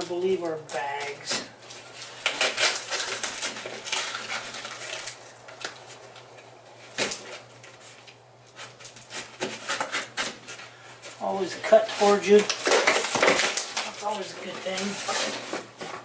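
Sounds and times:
knife slicing tape and cardboard: 6.9 - 10.7.

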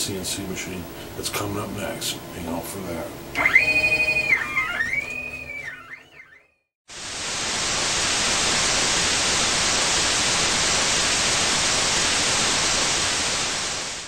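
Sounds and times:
static hiss: 6.9 - 14.0.

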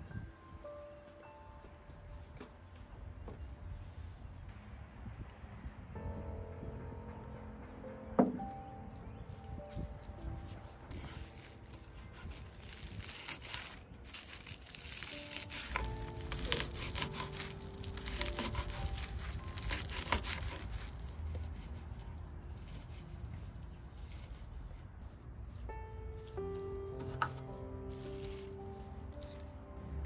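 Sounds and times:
knife chopping dry leaves: 10.4 - 21.9, 26.2 - 28.5.

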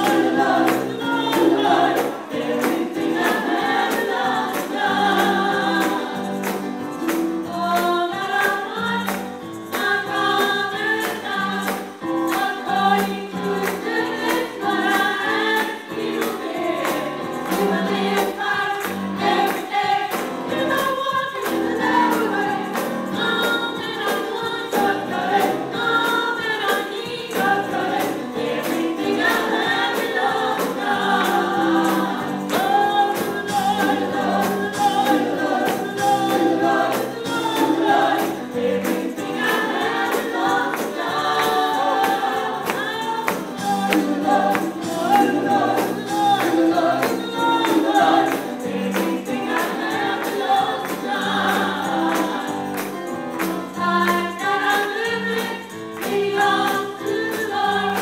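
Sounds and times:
mixed choir singing gospel: 0.0 - 58.0
steady percussion beat: 0.0 - 58.0.

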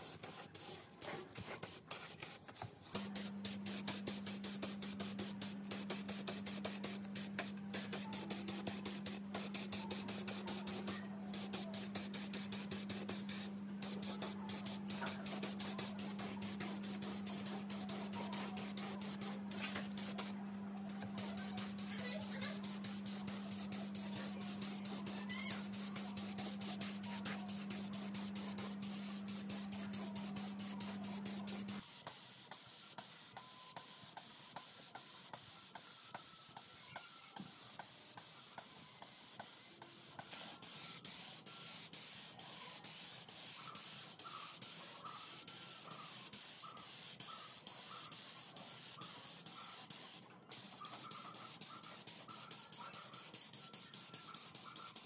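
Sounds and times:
spray gun hissing: 3.0 - 20.3, 21.2 - 31.8.

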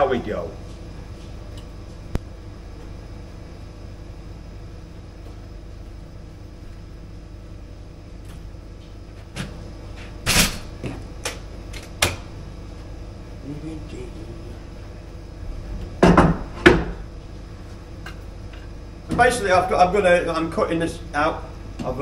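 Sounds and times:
low hum: 11.6 - 19.7.

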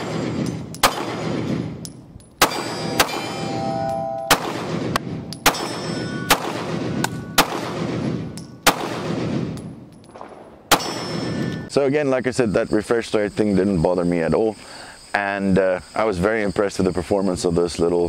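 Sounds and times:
pistol shots: 0.0 - 11.7
steel targets ringing: 2.4 - 8.7, 10.7 - 11.7.

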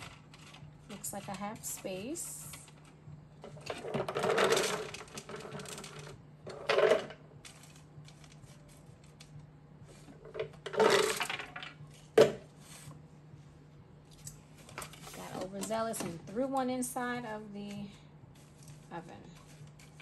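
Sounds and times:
nuts clattering onto metal tray: 3.7 - 7.8, 10.4 - 11.7.

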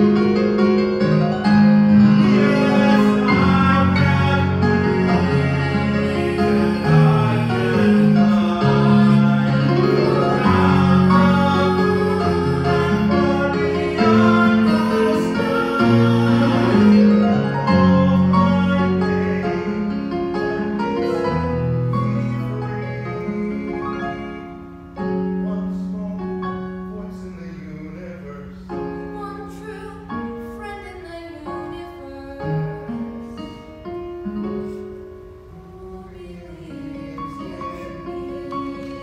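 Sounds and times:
instrumental accompaniment: 0.0 - 27.9
man singing: 2.2 - 24.5, 25.4 - 28.7.

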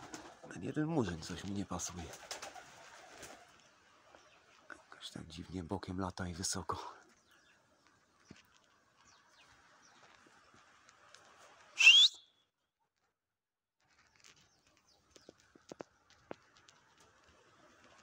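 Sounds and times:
sharp rising whistle: 11.8 - 12.2.

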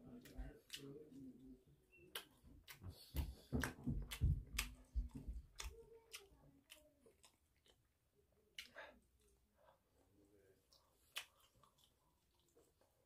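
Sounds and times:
wet mouth clicks and smacks: 2.1 - 2.9
person chewing fried food: 2.1 - 13.0.

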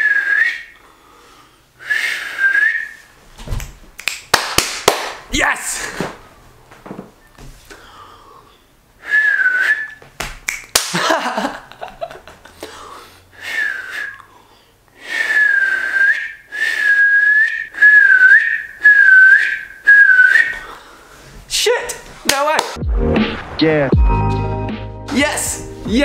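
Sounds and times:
shrill finger whistle blasts: 9.1 - 10.0, 15.2 - 20.6.

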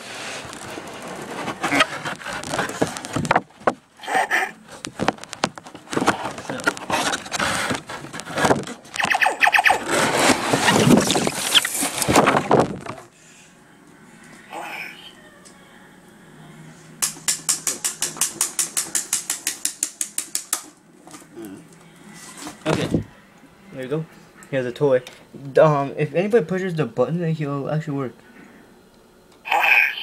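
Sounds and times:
plastic packaging crinkling: 0.1 - 3.6, 9.7 - 13.1.

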